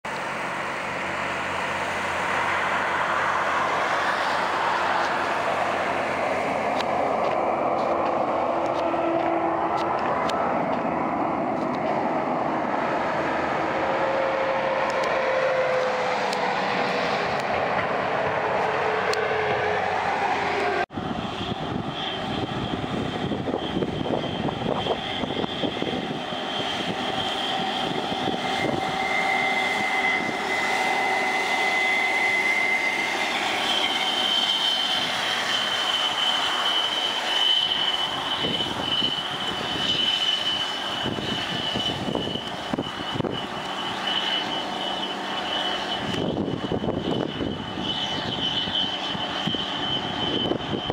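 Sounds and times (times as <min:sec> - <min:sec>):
tractor diesel engine passing: 0:00.1 - 0:50.9
tractor high whine: 0:00.1 - 0:50.9.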